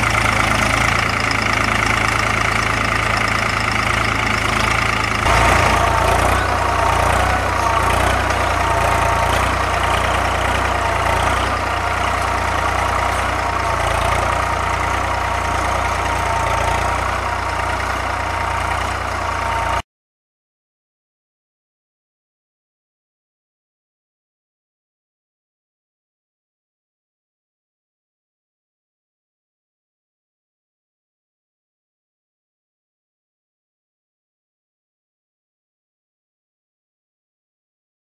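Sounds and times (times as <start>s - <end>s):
tractor engine under load: 0.0s - 19.8s.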